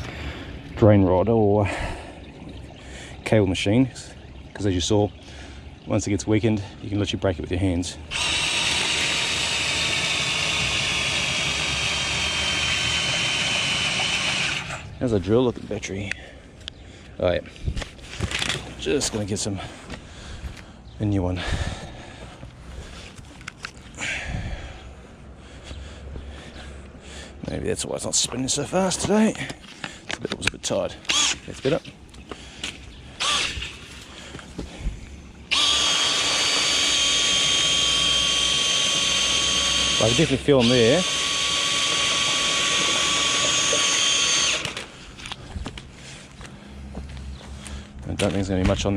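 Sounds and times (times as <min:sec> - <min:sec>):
cordless drill whirring: 0:08.1 - 0:14.9, 0:31.0 - 0:31.4, 0:33.2 - 0:33.8, 0:35.5 - 0:45.0.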